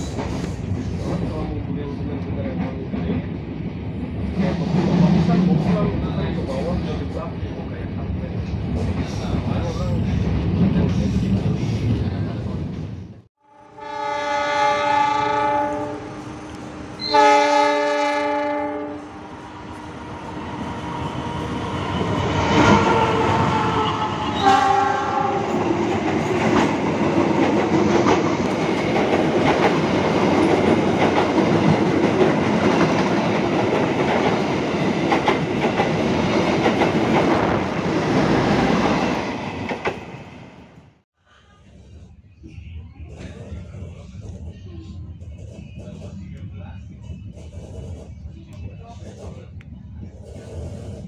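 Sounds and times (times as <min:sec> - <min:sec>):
train passing with rumble: 0:00.0 - 0:51.0
train horn blasts: 0:13.4 - 0:16.4, 0:17.0 - 0:19.1, 0:22.6 - 0:25.4.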